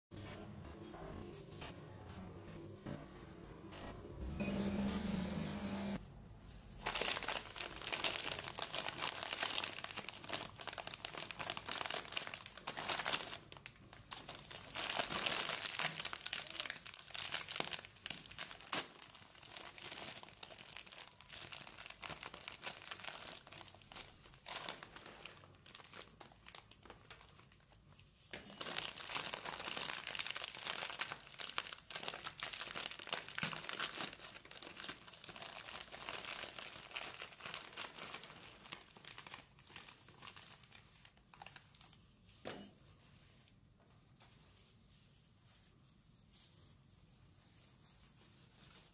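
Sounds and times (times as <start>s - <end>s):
plastic snack bags crinkling: 6.6s - 43.5s.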